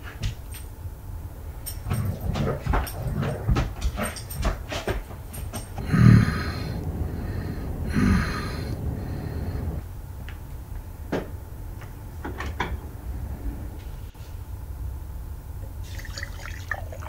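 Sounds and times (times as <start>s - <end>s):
low steady hum: 0.0s - 17.0s
man snoring: 5.8s - 9.8s.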